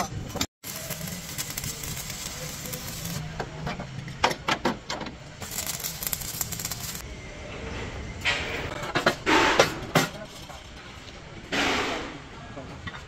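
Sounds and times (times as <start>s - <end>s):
crackling hiss: 0.6s - 3.2s, 5.4s - 7.0s.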